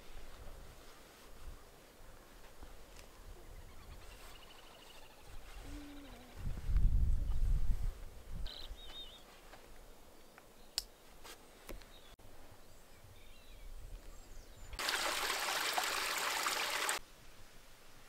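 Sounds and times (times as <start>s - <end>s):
stream trickling over rocks: 14.8s - 17.0s.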